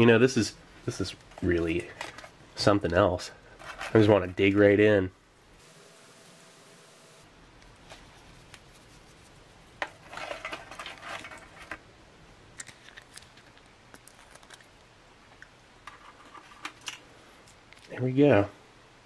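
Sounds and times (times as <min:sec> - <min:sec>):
crisp bread crackling and snapping: 0:12.6 - 0:14.9.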